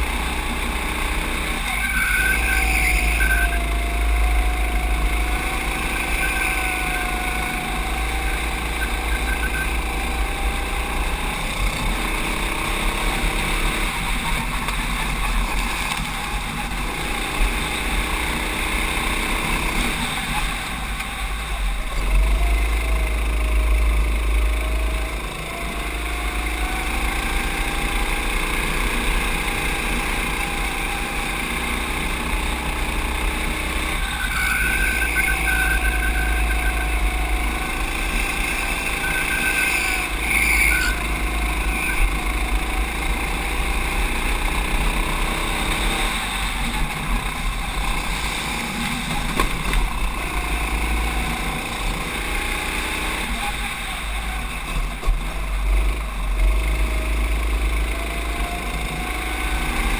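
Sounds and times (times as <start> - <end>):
high whine: 0.0 - 59.9
racing kart engine at speed: 0.0 - 59.9.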